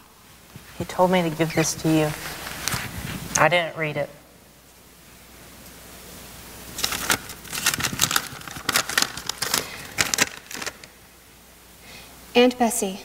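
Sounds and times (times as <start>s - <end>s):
paper crinkling: 2.0s - 3.2s, 6.8s - 10.9s.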